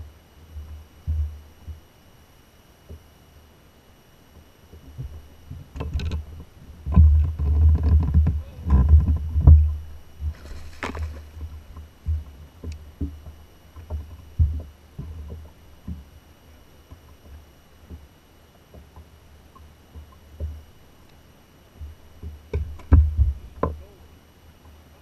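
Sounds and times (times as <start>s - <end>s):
water splash: 10.3s - 11.4s.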